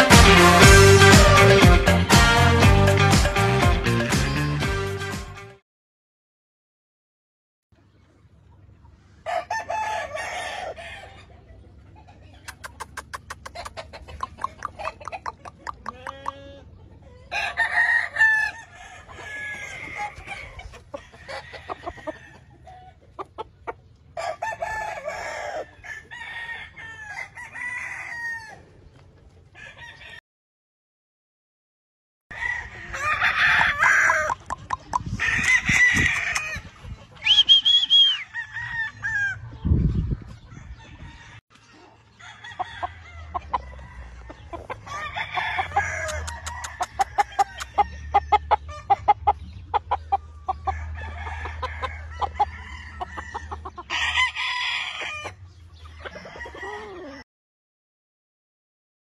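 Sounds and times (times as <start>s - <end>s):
chickens clucking: 7.8s - 27.5s, 28.5s - 30.2s, 32.6s - 57.2s
roosters crowing: 9.2s - 11.5s, 13.0s - 23.0s, 24.1s - 28.8s, 29.4s - 30.2s, 32.3s - 57.2s.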